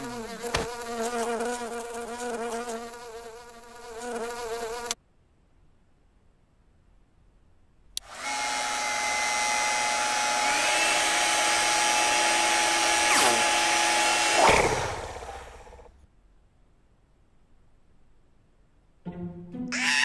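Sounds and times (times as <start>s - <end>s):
hair dryer whirring: 8.0s - 15.4s.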